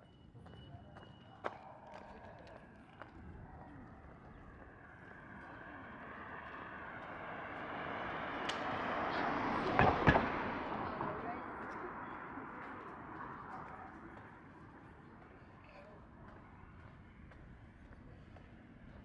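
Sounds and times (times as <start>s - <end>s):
vehicle passing by: 4.7s - 15.0s.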